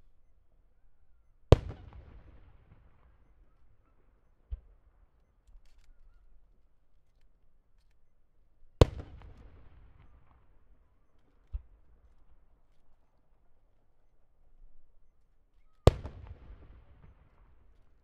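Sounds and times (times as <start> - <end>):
firework booms with echoing rumble: 1.5 - 3.2, 8.8 - 10.4, 15.9 - 17.7.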